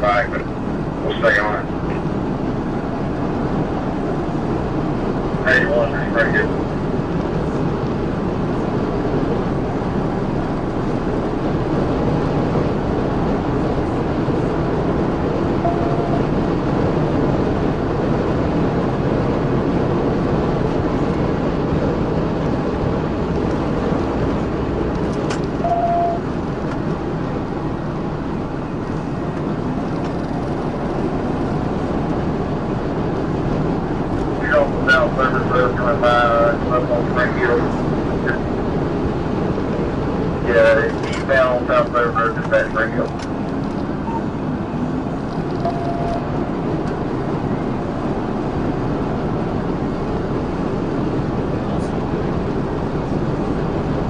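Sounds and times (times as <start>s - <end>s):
road and wind noise: 0.0s - 54.0s
short beeps: 15.6s - 16.3s, 25.6s - 26.2s, 44.0s - 44.3s, 45.6s - 46.3s.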